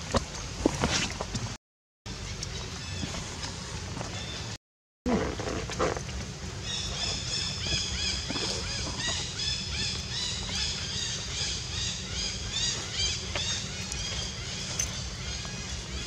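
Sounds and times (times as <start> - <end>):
steady low rumble: 6.0 - 16.0
birds chirping: 6.5 - 16.0.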